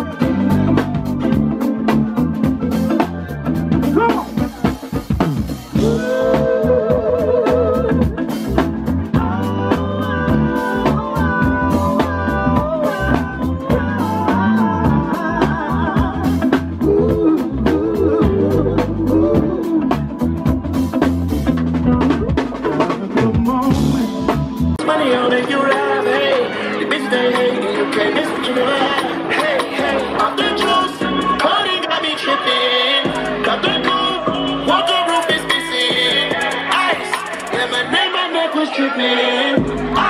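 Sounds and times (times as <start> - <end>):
electric bass: 0.0 - 25.0, 39.6 - 40.0
drum kit with snare and cymbals: 0.0 - 32.0, 32.9 - 38.2, 39.6 - 40.0
guitars: 0.0 - 38.6
person singing: 5.7 - 20.7, 21.8 - 40.0.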